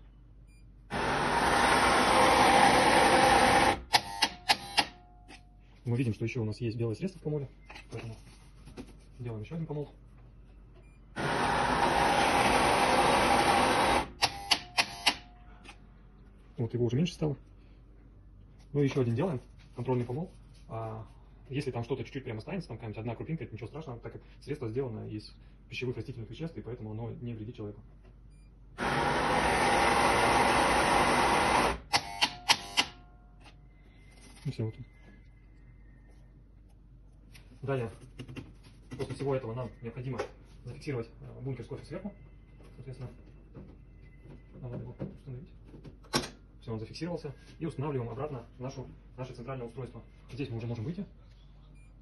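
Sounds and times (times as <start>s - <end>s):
coffee machine grinder running: 0.9s - 3.9s, 11.2s - 14.2s, 28.8s - 31.9s.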